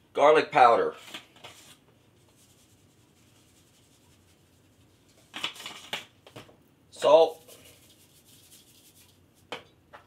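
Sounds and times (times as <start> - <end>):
spice shaker rasping shakes: 1.6 - 6.2, 7.1 - 9.5.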